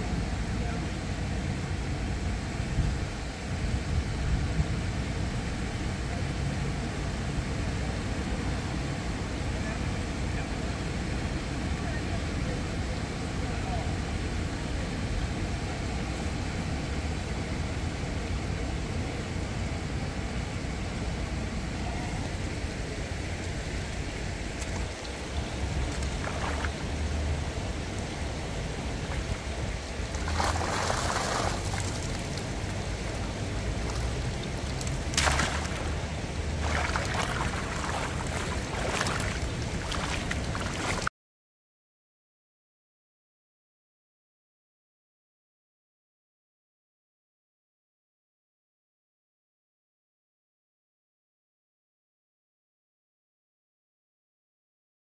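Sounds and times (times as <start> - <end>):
river water flowing: 0.1 - 41.1
water splashing and dripping: 24.5 - 41.1.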